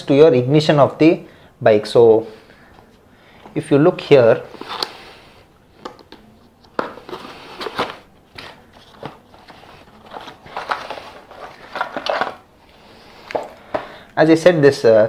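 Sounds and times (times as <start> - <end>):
cardboard and paper rustling: 4.5 - 5.1, 5.9 - 13.9.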